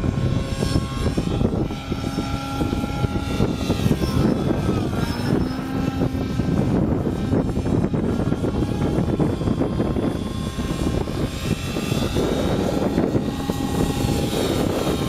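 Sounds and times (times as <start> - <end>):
model helicopter engine whine: 0.0 - 15.0.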